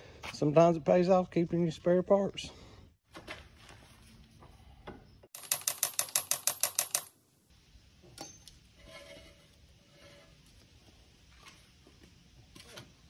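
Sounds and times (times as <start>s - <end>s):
socket ratchet clicking: 5.4s - 7.1s.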